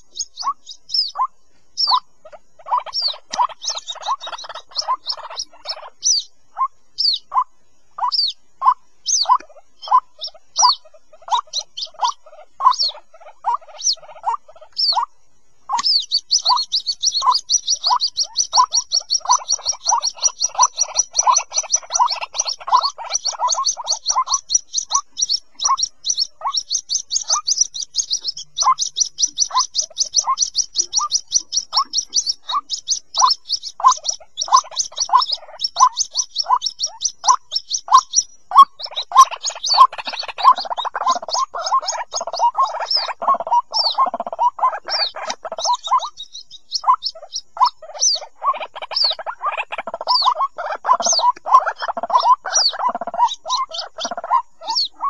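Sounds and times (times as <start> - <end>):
waterhen chicks peeping: 0.0 - 55.0
high rapid peeps: 2.7 - 6.2, 15.7 - 54.8.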